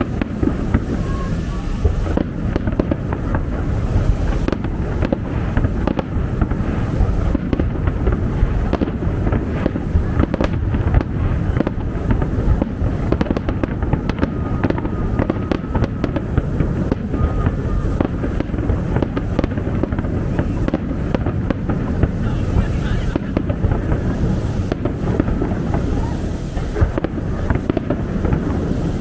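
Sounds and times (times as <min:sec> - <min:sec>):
fireworks bangs: 0:00.0 - 0:29.0
heavy low rumble: 0:00.0 - 0:29.0.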